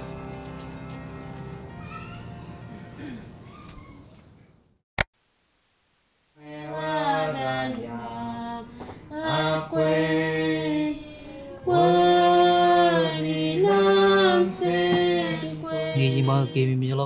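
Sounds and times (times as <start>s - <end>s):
voices singing a hymn: 6.4s - 17.0s.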